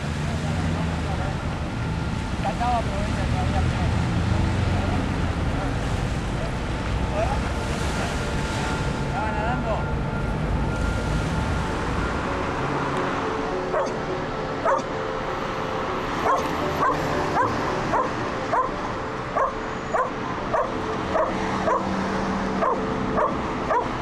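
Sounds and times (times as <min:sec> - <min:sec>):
steady background noise: 0:00.0 - 0:24.0
dog yipping: 0:13.8 - 0:14.0, 0:14.6 - 0:14.8, 0:16.2 - 0:18.7, 0:19.4 - 0:21.9, 0:22.6 - 0:23.9.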